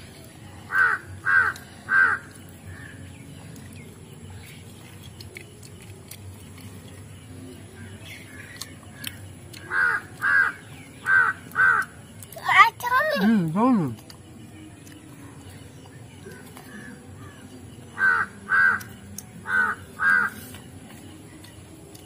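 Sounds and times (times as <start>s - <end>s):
crow cawing: 0.7s - 2.9s, 9.6s - 12.0s, 18.0s - 20.4s.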